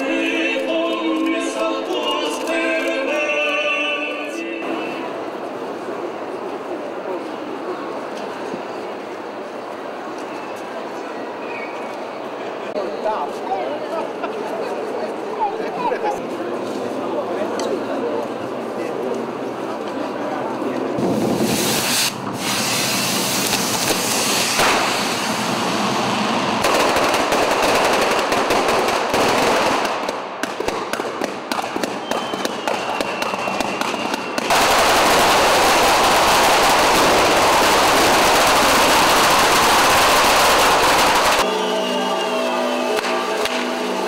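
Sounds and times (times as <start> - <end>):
firecrackers banging and crackling: 21.0 - 41.5, 42.9 - 44.0.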